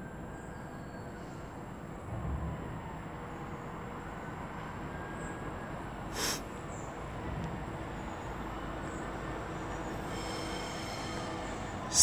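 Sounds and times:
distant diesel locomotive: 0:00.0 - 0:12.0
outdoor background noise: 0:00.0 - 0:12.0
sharp hiss: 0:06.1 - 0:06.4.

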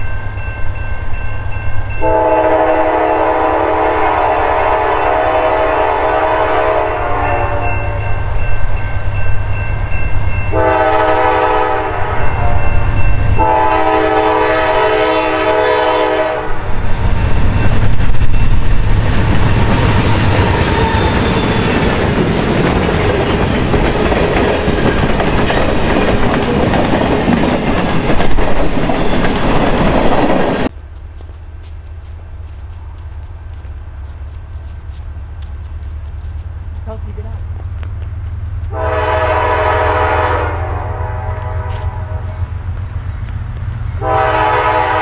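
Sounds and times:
locomotive horn blasts: 0:02.0 - 0:08.2, 0:10.5 - 0:16.6, 0:38.7 - 0:42.4, 0:44.0 - 0:45.0
locomotive engine rumble: 0:13.1 - 0:45.0.

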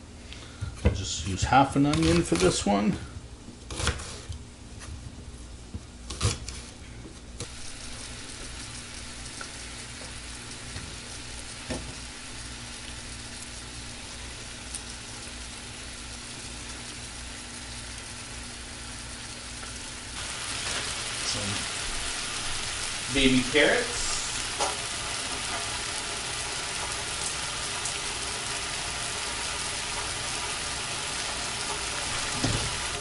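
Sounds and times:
chicken sizzling in a frying pan: 0:07.4 - 0:33.0.

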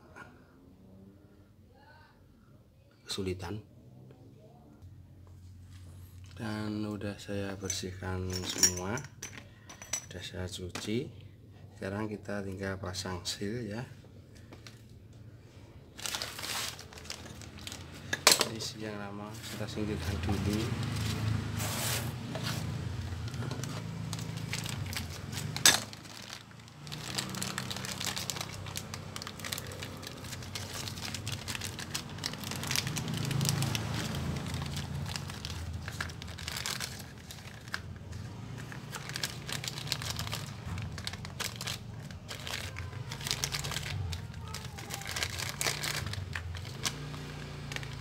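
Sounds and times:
plastic bag crinkling: 0:15.9 - 0:18.8, 0:19.4 - 0:48.0.

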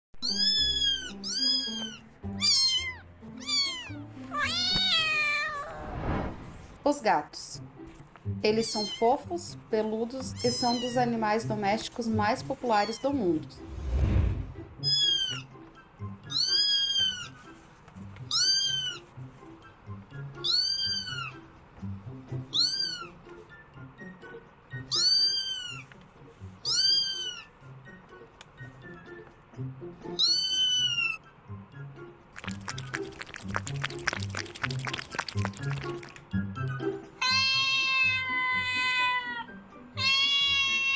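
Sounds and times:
background music: 0:00.2 - 0:05.8, 0:06.5 - 0:40.9
cat meowing: 0:00.2 - 0:05.9, 0:10.3 - 0:11.0, 0:16.3 - 0:17.4, 0:18.3 - 0:19.0, 0:20.4 - 0:21.4, 0:22.5 - 0:23.2, 0:24.9 - 0:25.9, 0:26.6 - 0:27.5, 0:30.2 - 0:31.2, 0:37.2 - 0:40.9.

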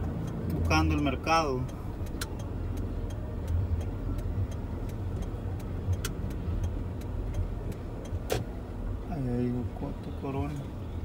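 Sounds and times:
car engine and road rumble: 0:00.0 - 0:11.0
turn signal ticking: 0:00.0 - 0:11.0.

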